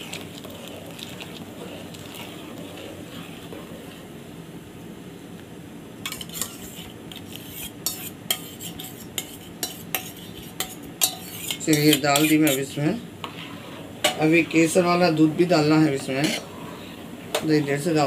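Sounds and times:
milk pouring: 0.0s - 4.1s
spoon stirring milk in a pot: 0.0s - 4.2s, 6.0s - 18.0s.

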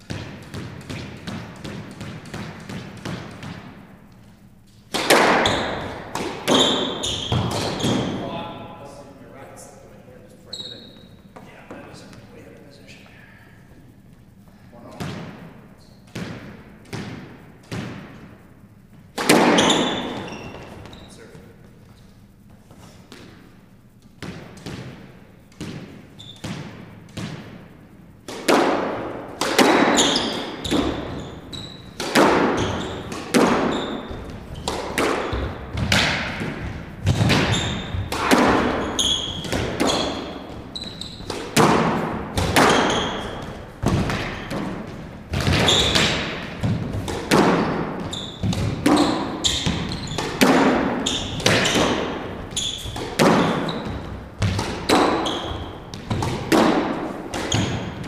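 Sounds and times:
squash ball strikes echoing: 0.0s - 9.8s, 13.8s - 58.0s
shoes squeaking on wooden floor: 5.4s - 8.3s, 10.5s - 12.4s, 19.5s - 23.2s, 29.8s - 56.4s, 57.4s - 58.0s.

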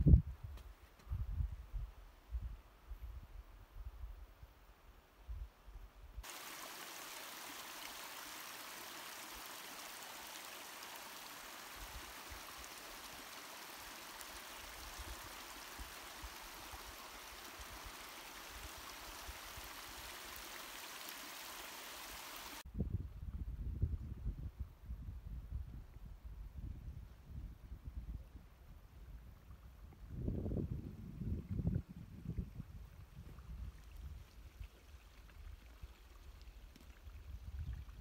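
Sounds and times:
stream water rushing: 6.2s - 22.6s.

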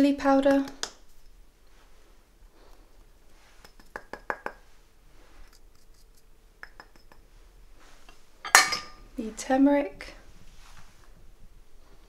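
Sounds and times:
ceramic bowls clinking: 8.4s - 9.0s.

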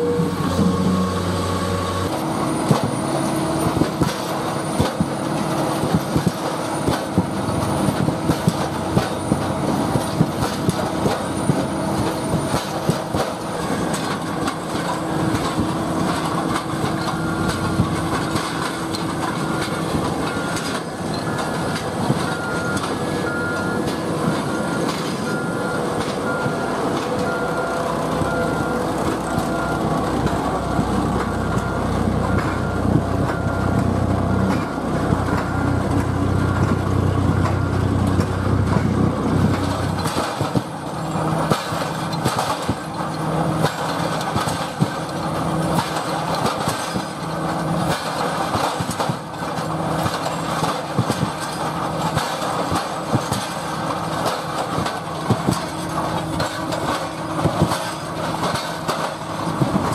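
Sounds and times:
reversing alarm beeping: 0.0s - 13.8s, 15.0s - 37.8s
heavy diesel machinery engine: 0.0s - 59.9s.

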